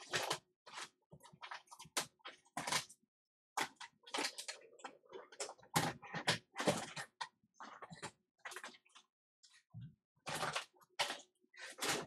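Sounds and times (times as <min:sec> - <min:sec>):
objects clattering and knocking: 0:03.6 - 0:12.0.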